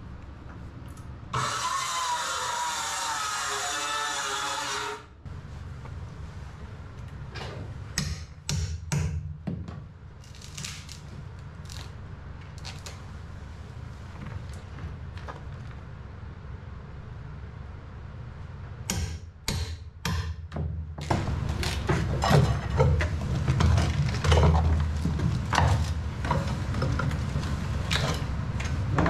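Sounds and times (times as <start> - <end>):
low steady hum: 0.0 - 29.0
wood splitting cracks: 10.2 - 13.0
scraping and knocking of wood: 21.0 - 29.0.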